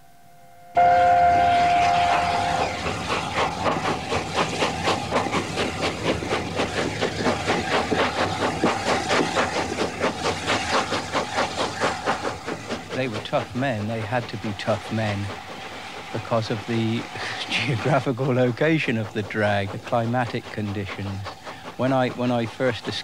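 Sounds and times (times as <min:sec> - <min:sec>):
steam locomotive whistle: 0:00.7 - 0:03.4
locomotive exhaust chuffing: 0:00.8 - 0:23.0.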